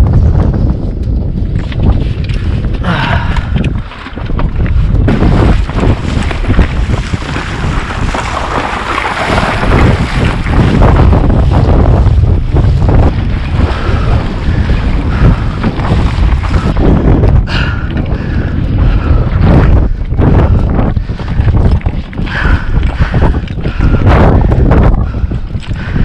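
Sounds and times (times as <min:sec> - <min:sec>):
wind buffeting microphone: 0:00.0 - 0:26.0
footsteps crunching on dry mud: 0:03.8 - 0:17.0.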